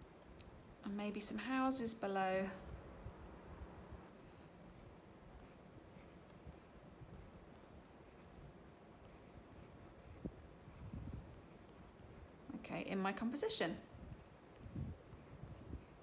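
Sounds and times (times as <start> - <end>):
pencil scratching on paper: 3.3 - 8.4, 9.0 - 12.3, 14.1 - 16.0.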